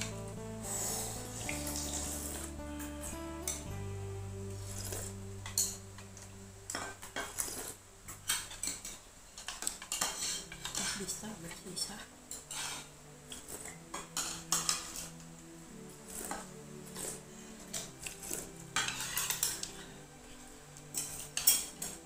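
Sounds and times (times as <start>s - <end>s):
metal spoon scraping ceramic bowl: 6.7s - 11.2s, 12.3s - 15.1s, 16.1s - 20.0s, 20.9s - 22.0s.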